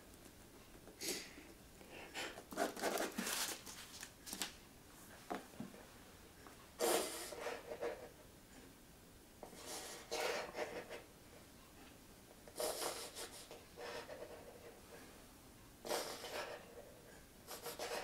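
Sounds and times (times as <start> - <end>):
pen scratching on paper: 17.5 - 18.0.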